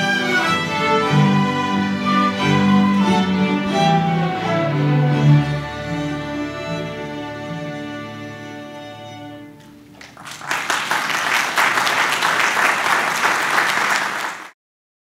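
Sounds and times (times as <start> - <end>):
audience applause: 9.9 - 14.6.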